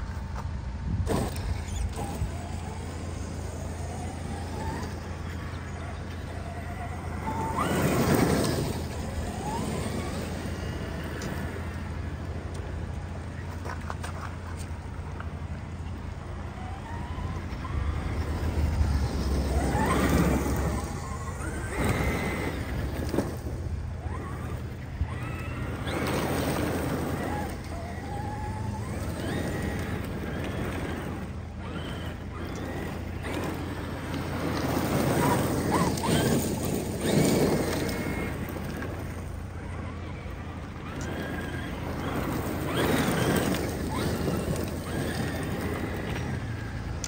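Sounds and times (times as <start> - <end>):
rc truck electric motor whining: 0.0 - 47.0.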